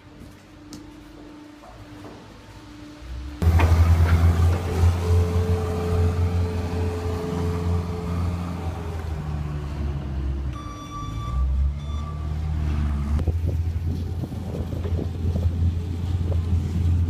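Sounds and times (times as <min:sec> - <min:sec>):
diesel engine droning: 0:00.0 - 0:17.0
high beeping tone: 0:10.5 - 0:12.4.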